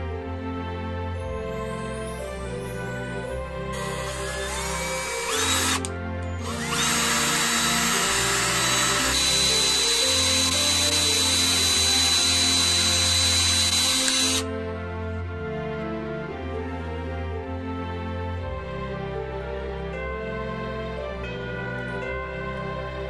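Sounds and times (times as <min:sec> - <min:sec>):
background music: 0:00.0 - 0:23.0
power drill whining: 0:03.7 - 0:14.5.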